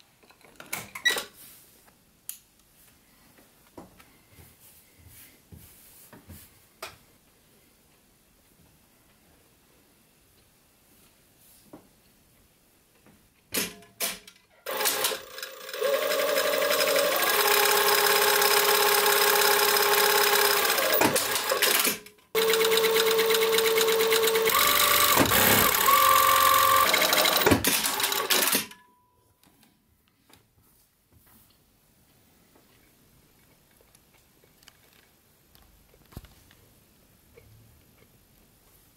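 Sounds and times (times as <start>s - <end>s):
sewing machine stitching: 14.7s - 28.7s.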